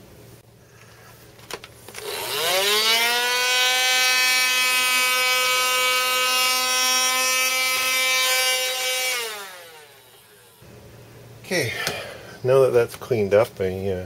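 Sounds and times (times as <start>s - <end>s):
handheld vacuum motor whine: 1.9s - 10.6s.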